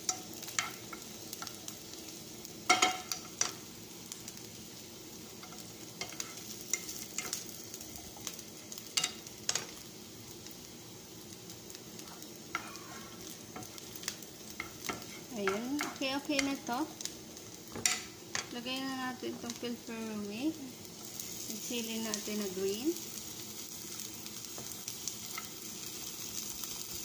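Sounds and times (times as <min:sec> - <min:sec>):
onion sizzling in oil: 0:00.0 - 0:27.0
wooden spatula scraping pan: 0:12.0 - 0:13.9, 0:14.6 - 0:16.5.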